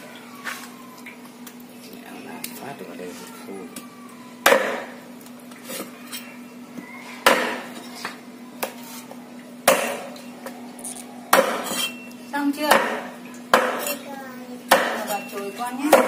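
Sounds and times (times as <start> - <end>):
cleaver chopping on a board: 4.5 - 4.9, 7.3 - 7.7, 11.3 - 11.8, 12.7 - 13.9, 14.7 - 15.1.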